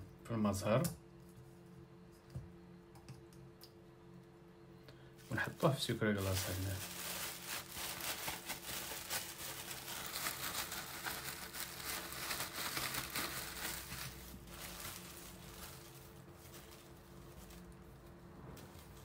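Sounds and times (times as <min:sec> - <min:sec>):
plastic bag crinkling: 0:05.2 - 0:19.0.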